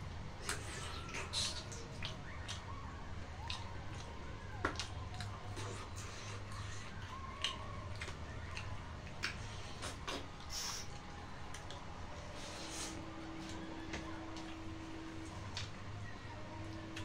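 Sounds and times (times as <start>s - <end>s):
low steady hum: 0.0s - 17.0s
mouth clicks and lip smacks: 0.4s - 2.7s, 3.4s - 11.9s.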